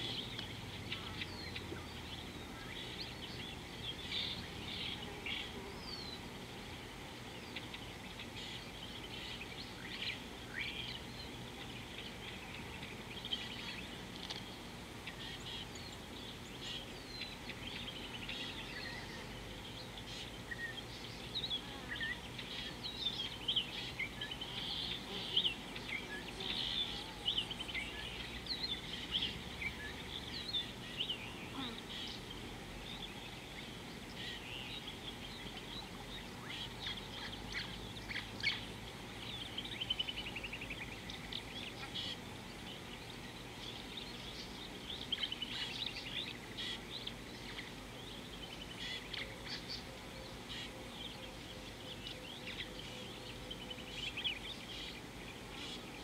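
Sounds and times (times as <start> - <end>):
outdoor background noise: 0.0 - 56.0
small birds chirping: 0.0 - 56.0.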